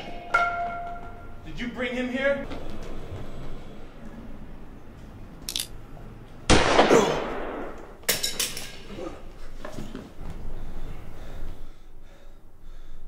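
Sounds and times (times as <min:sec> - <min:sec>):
sharp metallic clinks: 0:05.5 - 0:05.8, 0:08.1 - 0:08.8.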